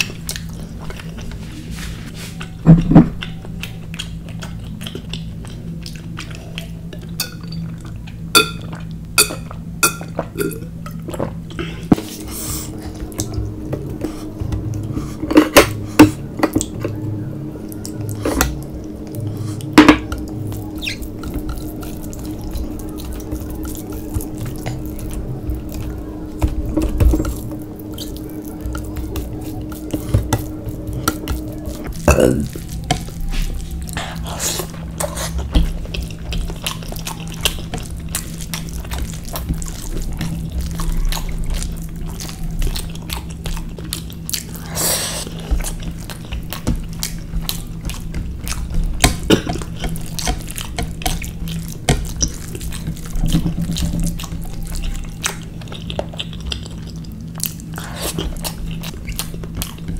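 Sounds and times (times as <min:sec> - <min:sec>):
low steady hum: 0:00.0 - 0:59.9
clinks against ceramic plates: 0:08.4 - 0:10.6.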